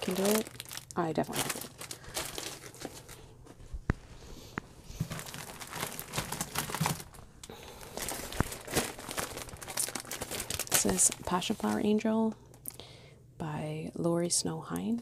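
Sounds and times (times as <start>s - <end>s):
plastic packages crinkling: 0.0s - 3.4s, 4.9s - 12.8s.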